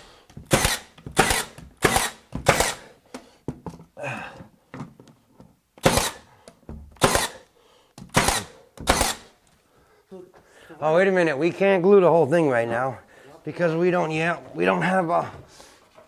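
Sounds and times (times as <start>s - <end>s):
nail gun firing into wood: 0.4s - 2.9s, 5.8s - 6.3s, 7.0s - 7.4s, 8.0s - 9.3s.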